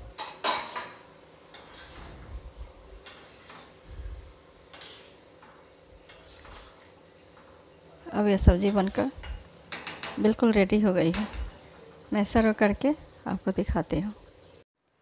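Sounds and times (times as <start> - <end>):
spatula scraping and tapping pan: 0.2 - 2.1, 3.0 - 3.8, 4.7 - 7.6, 8.6 - 10.4
spatula stirring curry in a pan: 1.5 - 2.1, 3.0 - 3.8, 4.6 - 7.5.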